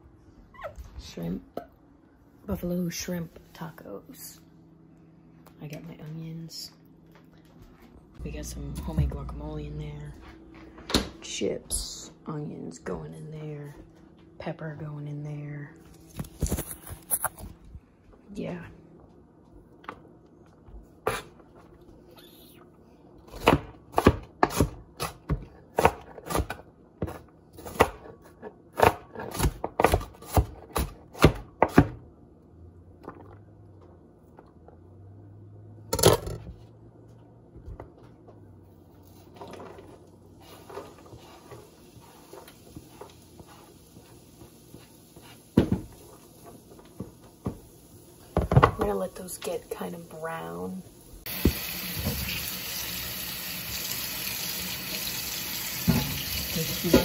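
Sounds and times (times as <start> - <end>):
knife chopping onion on cutting board: 23.3 - 28.1, 28.7 - 32.0.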